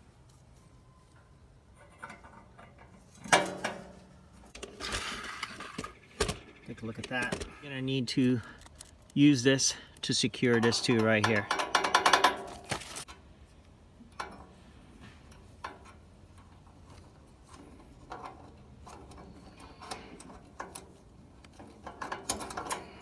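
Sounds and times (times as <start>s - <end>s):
faint metal clicks and ticks: 8.1s - 12.4s, 13.0s - 23.0s.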